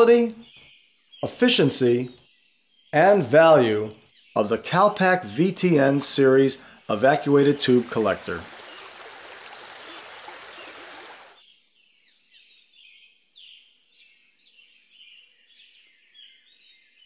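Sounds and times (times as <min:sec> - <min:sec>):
birds chirping: 0:02.8 - 0:11.4
running water hiss: 0:05.5 - 0:11.4.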